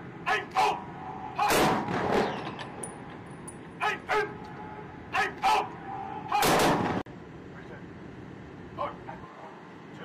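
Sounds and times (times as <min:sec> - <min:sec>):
man shouting drill commands: 0:00.2 - 0:01.6, 0:03.8 - 0:06.6
rifle volley with echo: 0:01.4 - 0:02.4, 0:06.4 - 0:07.0.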